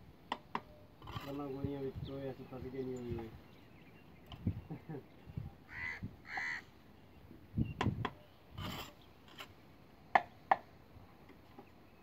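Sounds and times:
crow cawing: 5.7s - 6.7s
brief scrape: 8.5s - 9.6s.

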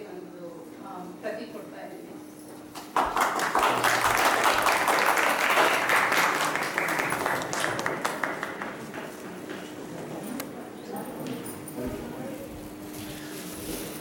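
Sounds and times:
people clapping: 2.7s - 10.5s.

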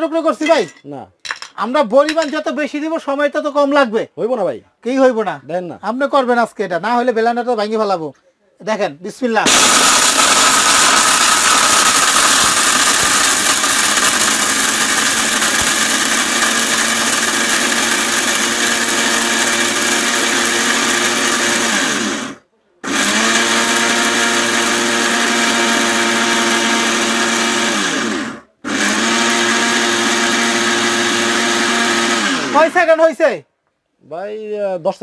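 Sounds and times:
mixer grinder grinding: 9.5s - 33.0s.

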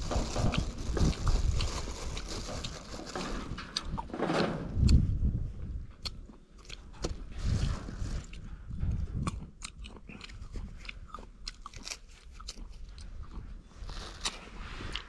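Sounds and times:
dull low thumps: 3.6s - 6.2s, 6.9s - 11.2s.

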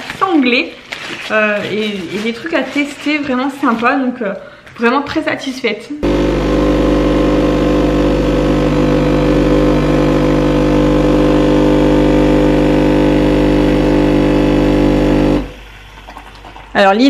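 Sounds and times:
coffee machine pump humming: 6.0s - 16.8s.

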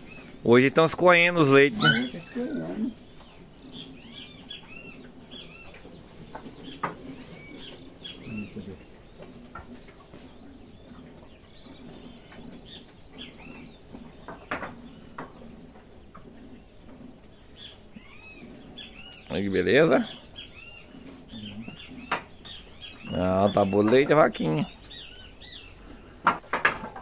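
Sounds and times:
small birds chirping: 0.0s - 27.0s
sharp knocks: 26.2s - 27.0s.

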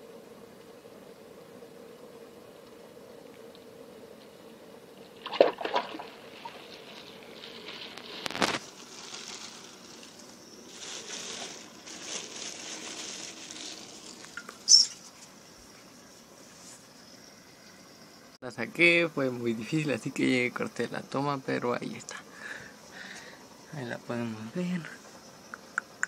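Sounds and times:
water splashing and sloshing: 5.1s - 8.2s
water dribbling: 5.2s - 7.2s.

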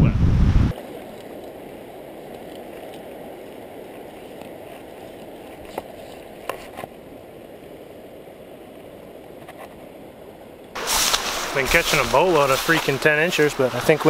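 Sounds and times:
stream water rushing: 10.7s - 14.0s.

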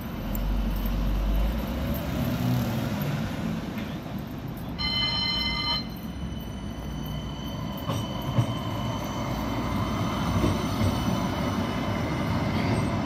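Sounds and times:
road traffic: 0.0s - 13.0s
tram approaching: 0.0s - 13.0s
steady high tone: 4.8s - 10.2s.

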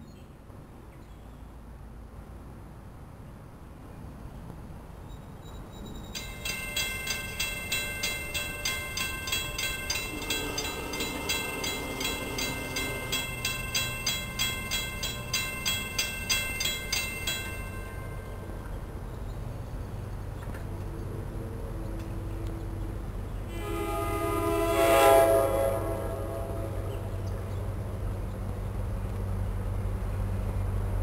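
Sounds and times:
railroad crossing bell ringing: 5.9s - 19.5s, 23.5s - 27.6s.

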